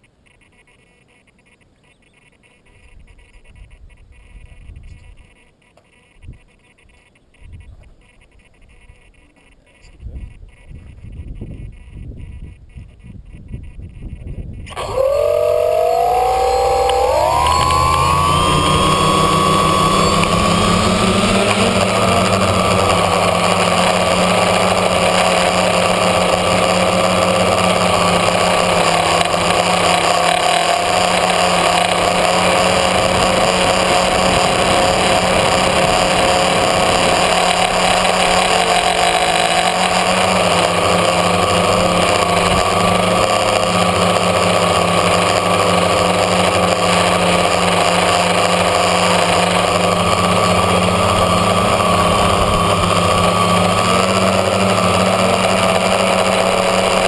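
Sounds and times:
drone motors whining: 14.1 - 57.0.

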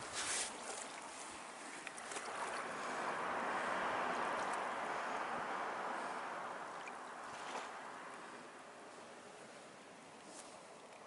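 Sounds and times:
small wave washing onto sand: 0.0 - 8.5.

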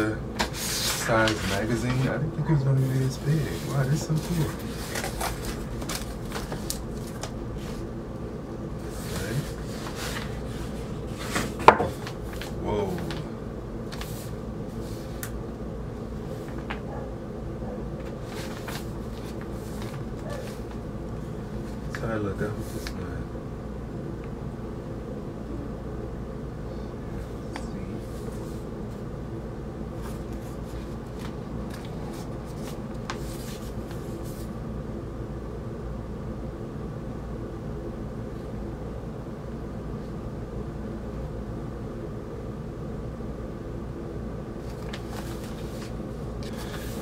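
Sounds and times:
low room hum: 0.0 - 47.0
magazine paper rustling: 0.4 - 2.2, 2.8 - 7.8, 8.8 - 15.3, 16.3 - 16.8, 18.0 - 20.8, 30.0 - 34.5, 44.6 - 47.0.

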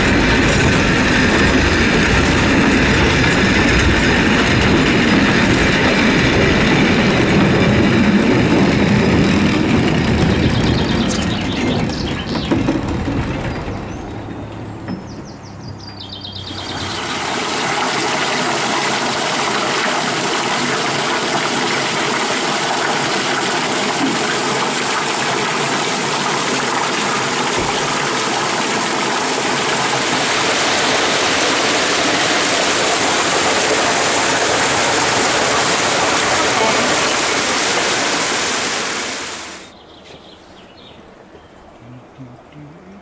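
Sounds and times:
water rushing: 0.0 - 8.7, 16.4 - 39.7
low hum: 0.0 - 18.2.

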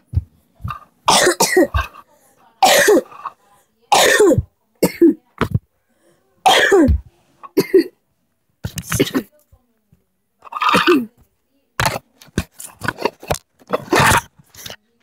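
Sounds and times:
boy coughing: 1.1 - 2.0, 2.6 - 3.3, 3.9 - 5.2, 6.4 - 8.0, 8.8 - 9.3.

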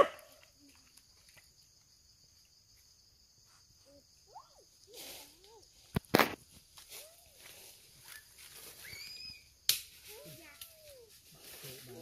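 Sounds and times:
insects droning: 0.0 - 12.0
sharp snaps: 9.7 - 10.0.

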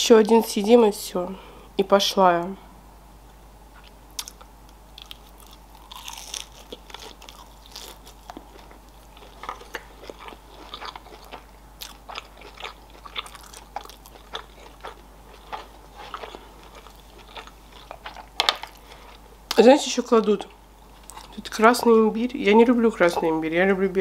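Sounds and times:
person chewing food: 3.8 - 19.3, 20.9 - 22.0.

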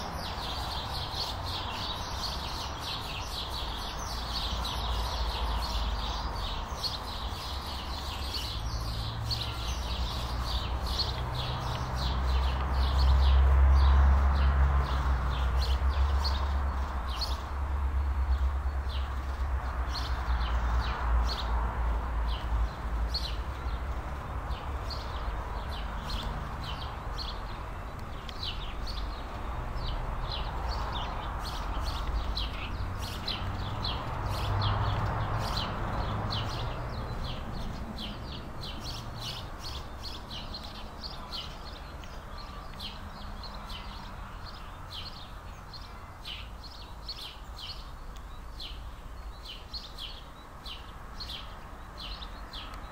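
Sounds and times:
small birds chirping: 0.0 - 52.9.

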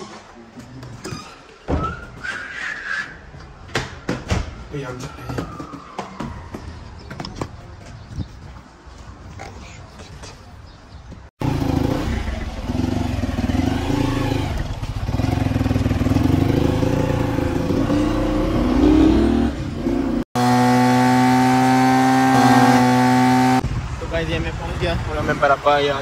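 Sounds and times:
motorcycle engine running: 11.4 - 23.9.

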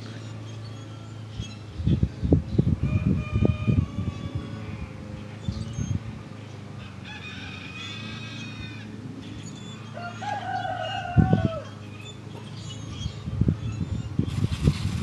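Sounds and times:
rooster crowing: 2.8 - 5.0, 6.8 - 9.0, 9.8 - 11.8.

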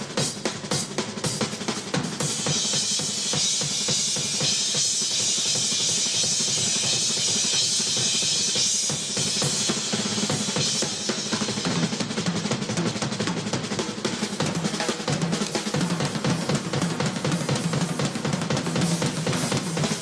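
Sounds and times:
crashing cymbals: 0.0 - 12.0
rapid drum strokes: 0.0 - 20.0.

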